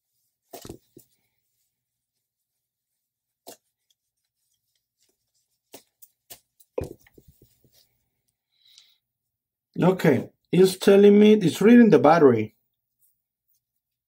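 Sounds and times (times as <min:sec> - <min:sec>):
cloth wiping a screen: 0:00.0 - 0:08.2.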